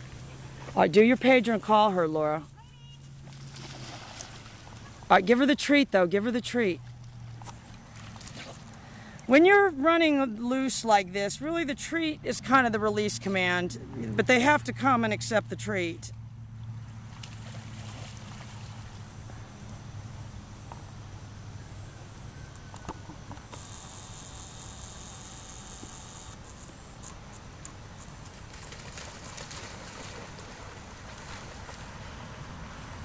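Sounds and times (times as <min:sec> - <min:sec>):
water splashing: 0:03.1 - 0:08.6, 0:17.0 - 0:19.1, 0:28.2 - 0:33.0
high steady buzz: 0:23.4 - 0:27.2.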